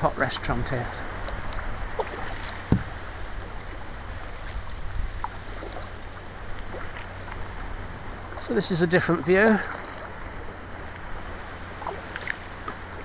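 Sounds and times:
water splashing around kayak: 0.0s - 13.0s
wind rumble on microphone: 0.0s - 13.0s
dull knock: 2.7s - 2.9s.

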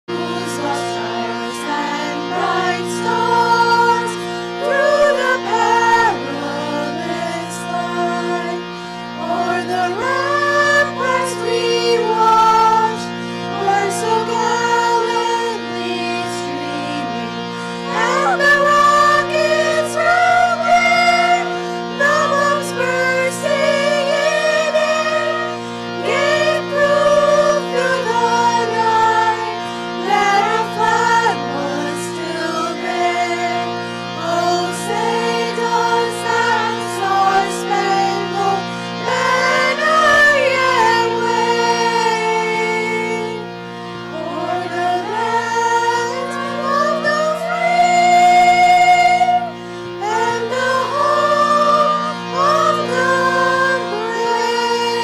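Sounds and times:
choir singing in unison: 0.1s - 43.5s, 44.1s - 55.0s
steady held drone: 0.1s - 55.0s.

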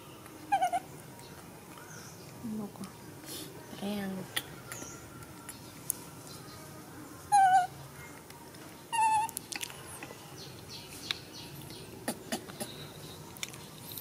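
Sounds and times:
baby monkey calling: 0.5s - 0.9s, 7.3s - 7.7s, 8.9s - 9.4s.

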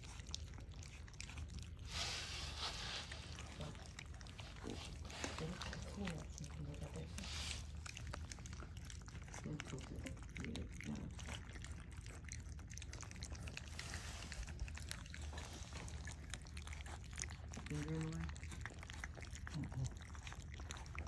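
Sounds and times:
puppies lapping from a metal pan: 0.0s - 21.0s.

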